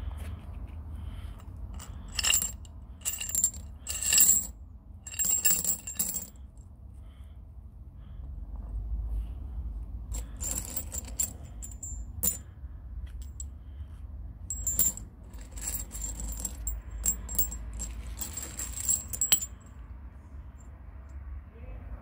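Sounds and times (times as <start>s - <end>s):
metal figurines clinking: 1.8s - 6.4s, 10.1s - 12.5s, 14.5s - 19.7s.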